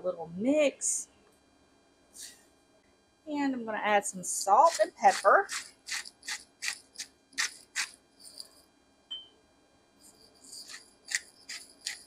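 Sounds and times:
dry rasping grinder strokes: 4.6 - 8.4, 10.4 - 12.0.

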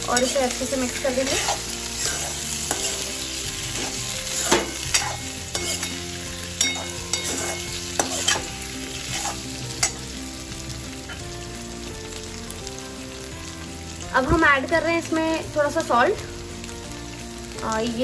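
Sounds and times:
potatoes sizzling in oil: 0.0 - 18.0
steel spoon scraping pan: 0.1 - 10.0.

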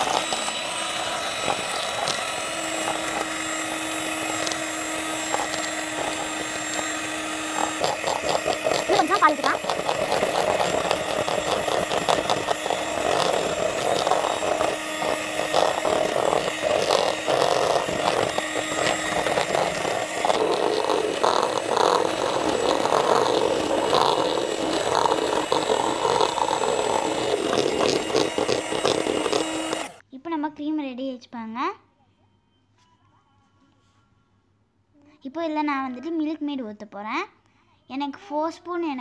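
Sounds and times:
electric hand mixer running: 0.0 - 30.0.

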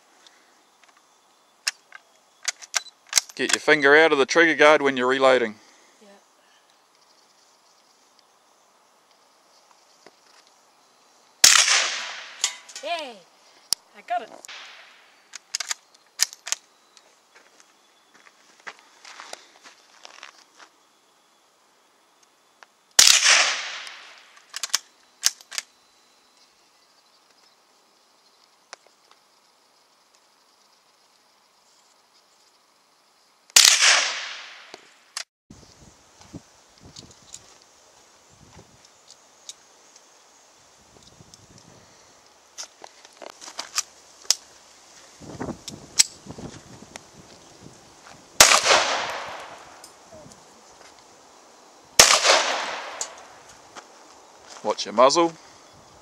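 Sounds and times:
rifle shot: 11.4 - 12.6, 14.5 - 14.9, 23.0 - 24.2, 33.6 - 34.7, 48.4 - 49.8, 52.0 - 53.3.

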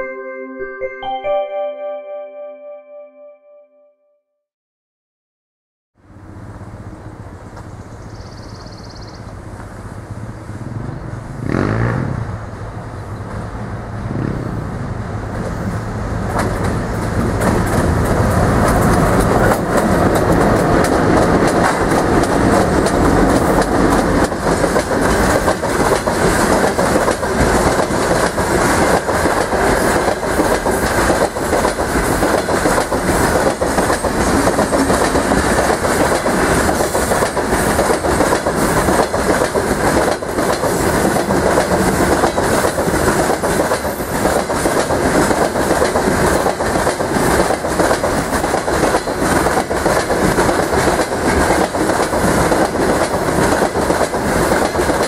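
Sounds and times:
electric locomotive humming: 6.0 - 11.6, 12.3 - 55.0
rumble of train wheels: 6.0 - 55.0
wheels clacking over rail joints: 16.2 - 55.0.

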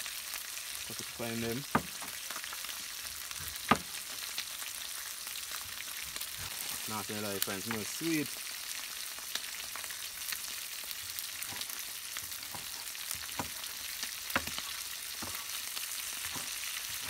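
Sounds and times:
cleaver chopping on plastic board: 1.7 - 2.2, 3.7 - 3.9.

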